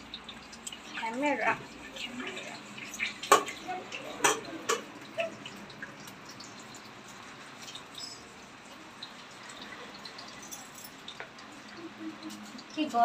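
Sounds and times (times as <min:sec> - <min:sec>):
wet clicks and clinks: 0:02.8 - 0:08.8, 0:09.5 - 0:13.0.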